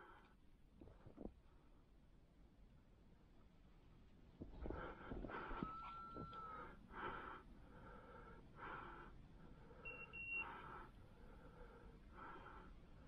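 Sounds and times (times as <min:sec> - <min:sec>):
person breathing softly: 0:04.6 - 0:05.8, 0:06.4 - 0:13.0.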